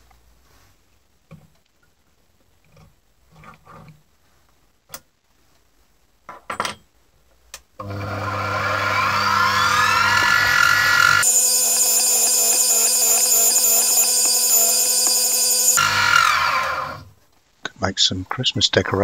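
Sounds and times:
mill motor whine: 7.8 - 17.1.

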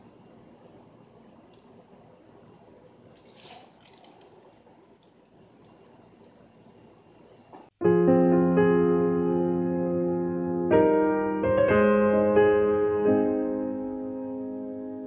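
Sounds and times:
piping bag squishing and squeaking: 3.2 - 4.6
piano music: 7.8 - 15.0.

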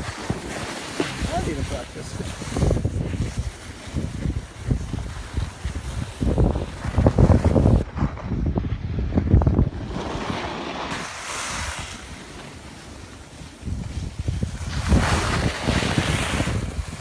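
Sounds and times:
wind buffeting microphone: 0.0 - 12.4, 13.1 - 17.0
skis sliding over packed snow: 0.0 - 17.0.

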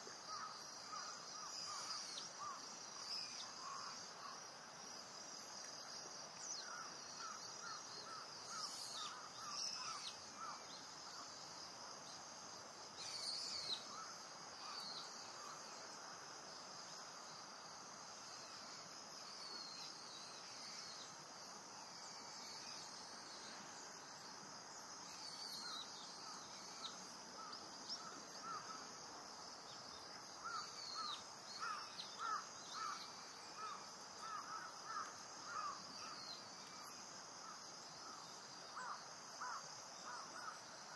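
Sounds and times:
insects chirring: 0.0 - 40.9.

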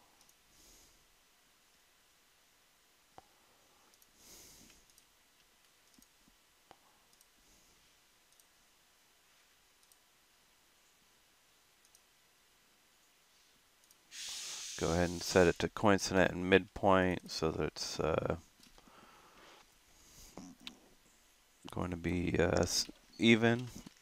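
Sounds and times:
computer mouse clicks: 0.2 - 0.4, 3.9 - 7.4, 8.3 - 8.5, 9.8 - 10.0, 11.8 - 12.1
short soft hiss: 14.1 - 15.8.

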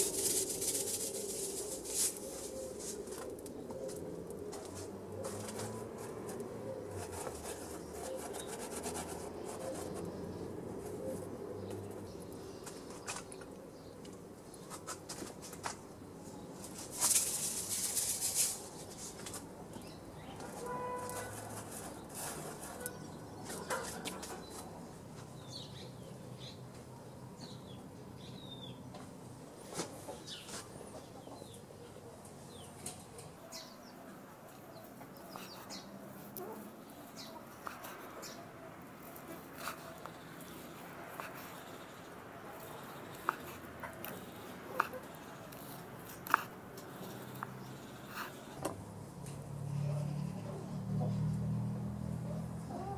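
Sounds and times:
bread rubbed on ash: 0.0 - 3.4, 4.7 - 10.2, 20.6 - 22.9
coals crackling: 0.0 - 8.4
small birds chirping: 0.0 - 29.1, 30.0 - 48.6
faint outdoor background: 0.0 - 52.9.

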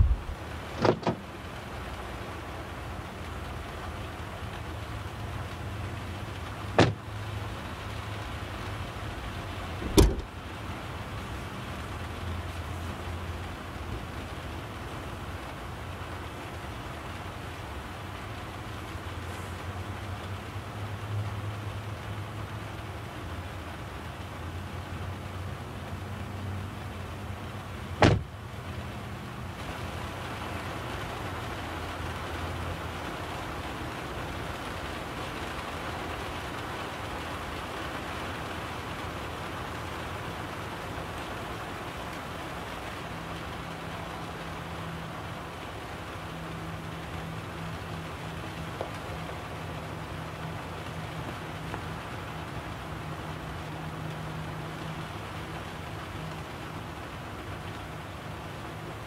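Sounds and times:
car door slamming: 0.0 - 1.2, 6.8 - 7.0, 9.8 - 10.4, 28.0 - 28.3
car hood clunk: 0.0 - 1.2, 6.8 - 7.0, 9.8 - 10.3, 28.0 - 28.3
steady hiss: 0.0 - 59.0.

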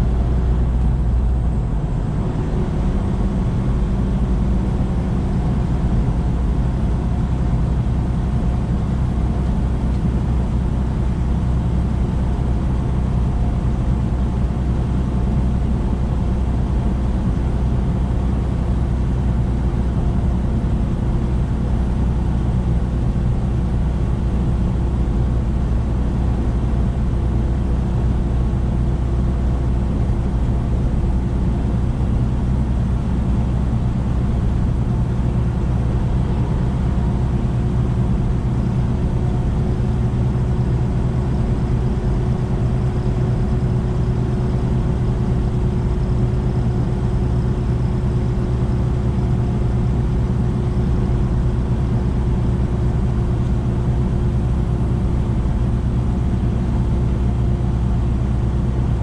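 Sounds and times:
truck diesel engine drone: 0.0 - 59.0.

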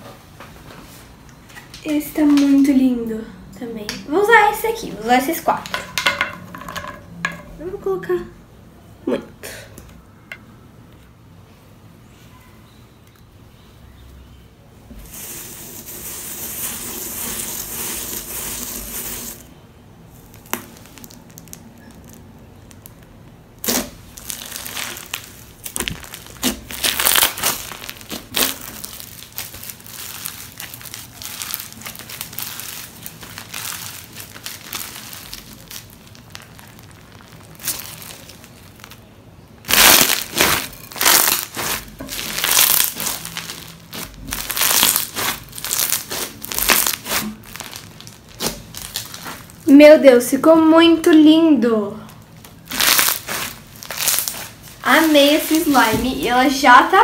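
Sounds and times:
crunchy slime squeezed by hand: 20.2 - 49.6, 52.5 - 56.0.

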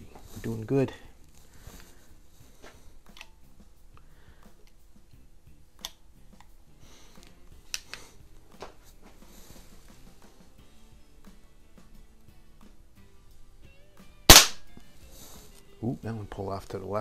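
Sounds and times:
pistol loading mechanism clicks: 3.1 - 3.4, 5.8 - 6.5, 7.7 - 8.0.

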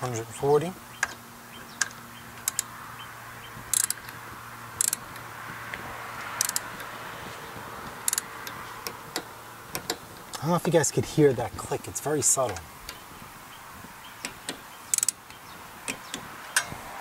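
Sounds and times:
torque wrench ratcheting clicks: 1.8 - 2.7, 3.7 - 4.2, 4.8 - 5.2, 6.4 - 6.9, 8.0 - 10.4, 14.2 - 16.7.

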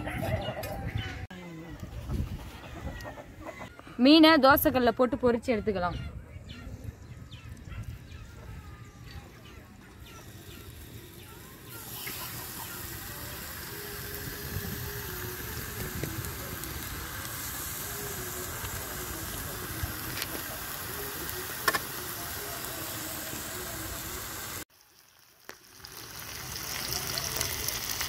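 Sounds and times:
fish sizzling in oil: 10.1 - 28.0.

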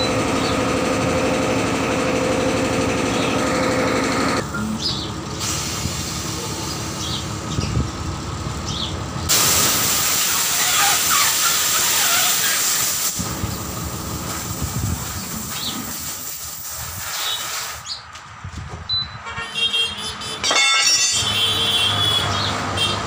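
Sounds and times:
compressed air hissing into tyre: 5.4 - 6.8, 9.3 - 18.0.

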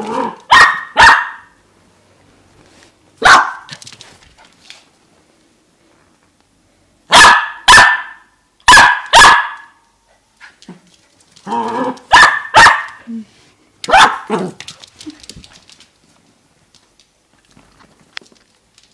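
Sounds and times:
growling bark: 0.0 - 1.5, 11.4 - 13.0, 13.9 - 14.6
puppy barking: 0.1 - 1.6, 3.2 - 3.7, 7.1 - 9.8, 11.8 - 13.1, 13.8 - 14.6.

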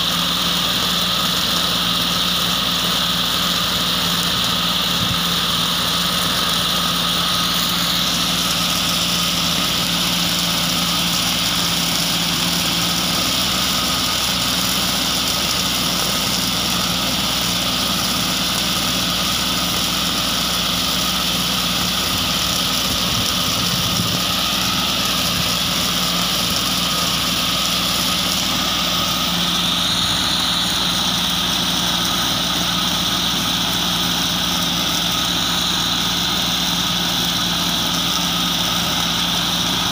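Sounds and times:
mulcher hiss: 0.0 - 39.9
tractor engine droning: 0.0 - 39.9.

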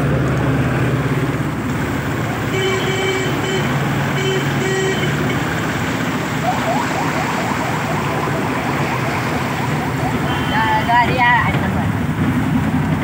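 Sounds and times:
vehicle engine running: 0.0 - 13.0
water churning and splashing: 0.0 - 13.0
horn-like beeps: 2.4 - 5.4, 6.4 - 11.4.

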